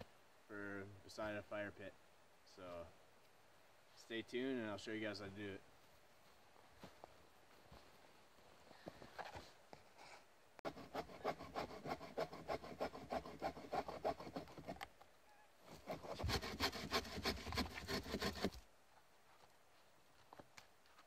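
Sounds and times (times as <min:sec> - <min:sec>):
hand saw cutting log: 0:10.6 - 0:14.8, 0:15.7 - 0:18.6.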